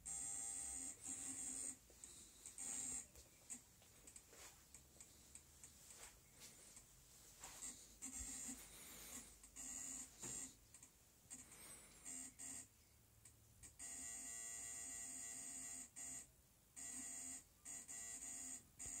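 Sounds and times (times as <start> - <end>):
electronic buzzer beeping: 0.0 - 3.6, 7.4 - 10.6, 11.3 - 12.7, 13.7 - 19.0.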